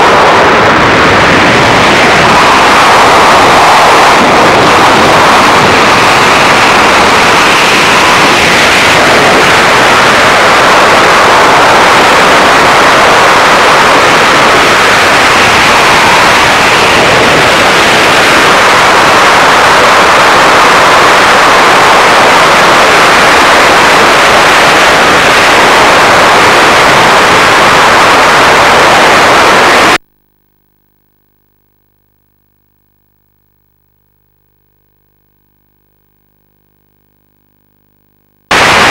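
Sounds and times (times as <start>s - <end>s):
wind blasting across microphone: 0.0s - 30.0s, 38.5s - 38.9s.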